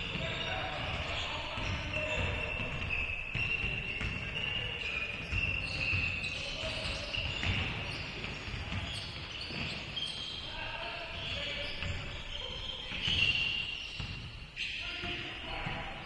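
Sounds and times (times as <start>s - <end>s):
shoe squeaks: 0.0s - 15.3s
basketball bouncing on hardwood: 0.1s - 4.4s.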